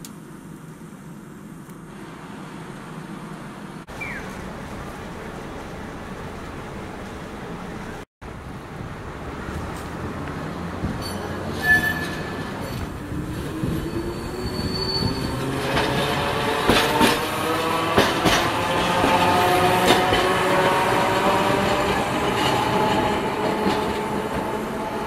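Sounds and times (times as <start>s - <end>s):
streetcar motor whine: 0.0s - 25.0s
wheels clacking over rail joints: 9.4s - 25.0s
wheel squeal: 11.0s - 16.1s.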